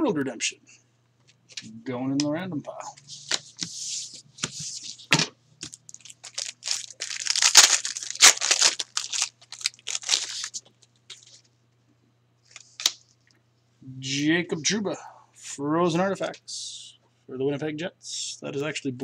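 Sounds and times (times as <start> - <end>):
wrapper tearing and crinkling: 5.6 - 11.3.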